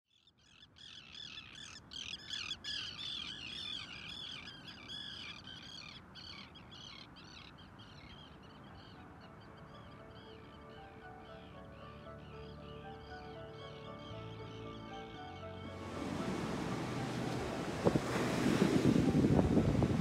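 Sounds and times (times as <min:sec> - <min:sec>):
flock of birds calling: 0:00.5 - 0:17.1
faint music: 0:08.0 - 0:20.0.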